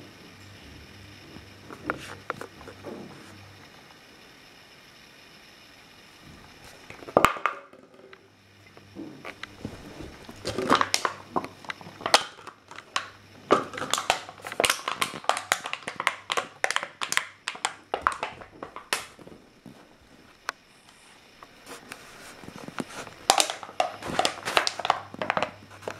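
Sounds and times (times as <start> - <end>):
dog chewing plastic bottle: 9.3 - 19.3, 22.5 - 25.9.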